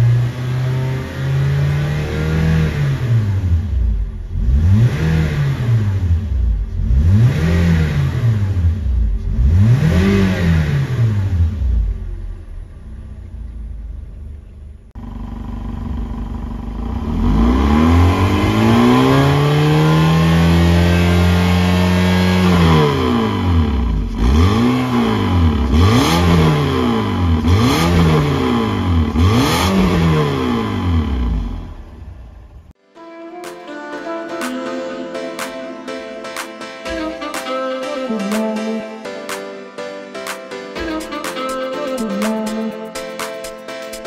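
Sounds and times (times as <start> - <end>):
car engine revving: 0.0 - 32.8.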